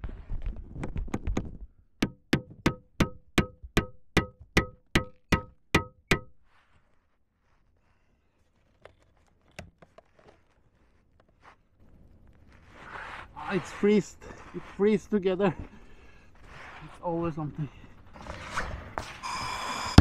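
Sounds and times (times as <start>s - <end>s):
hammer ringing on metal: 2.0s - 6.3s
quick knocks: 2.0s - 6.3s.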